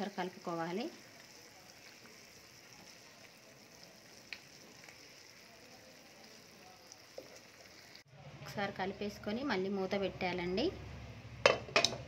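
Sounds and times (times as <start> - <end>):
food sizzling in oil: 0.0 - 8.1.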